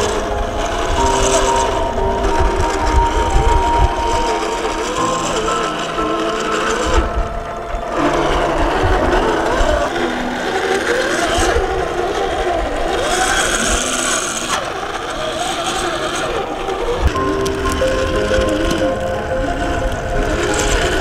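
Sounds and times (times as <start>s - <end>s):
electric motor and drivetrain whining: 0.0s - 21.0s.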